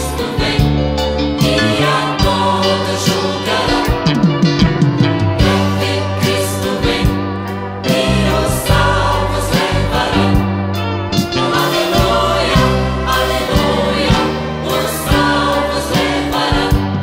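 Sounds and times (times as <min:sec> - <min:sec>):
choir singing: 0:00.0 - 0:04.4, 0:05.4 - 0:17.0
band playing: 0:00.0 - 0:17.0
bass line: 0:00.0 - 0:17.0
drum hits: 0:03.2 - 0:08.9.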